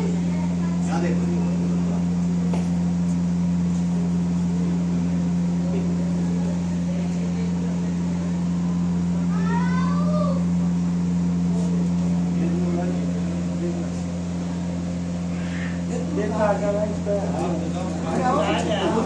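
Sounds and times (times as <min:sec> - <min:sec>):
faint indistinct voices: 0:00.0 - 0:19.0
low mechanical hum: 0:00.0 - 0:19.0.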